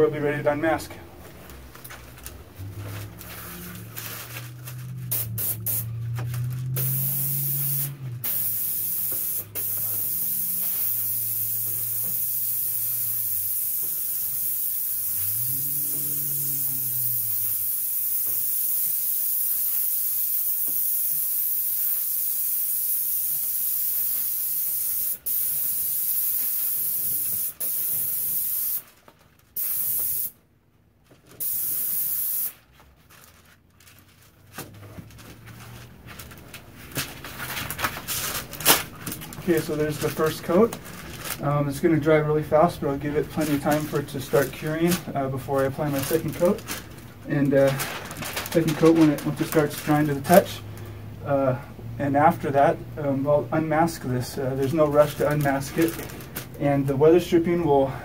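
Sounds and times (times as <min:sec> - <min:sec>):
paint spray gun hissing: 0:05.1 - 0:06.0, 0:06.8 - 0:28.9, 0:29.6 - 0:30.4, 0:31.4 - 0:32.6.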